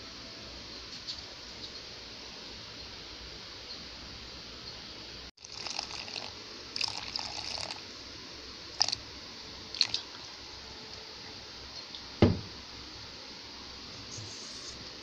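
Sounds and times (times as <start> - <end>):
water pouring into flour: 5.4 - 7.8, 8.8 - 9.0, 9.8 - 10.1.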